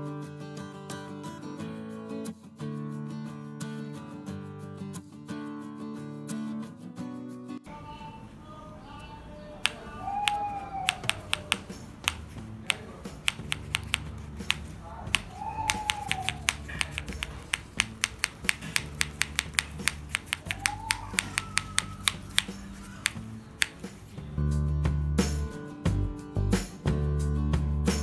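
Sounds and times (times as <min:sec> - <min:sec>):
clapper toy clacking: 0:09.6 - 0:24.2.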